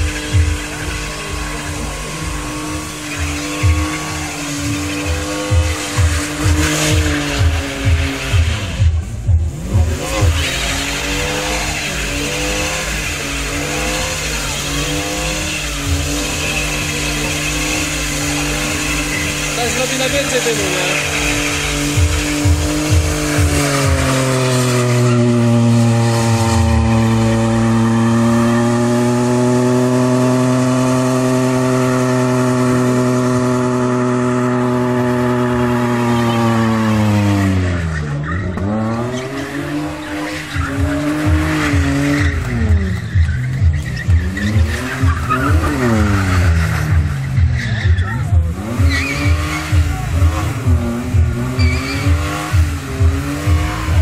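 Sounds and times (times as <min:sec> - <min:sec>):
car engine revving: 0:00.0 - 0:54.0
tyres squealing: 0:10.0 - 0:28.6, 0:35.4 - 0:54.0.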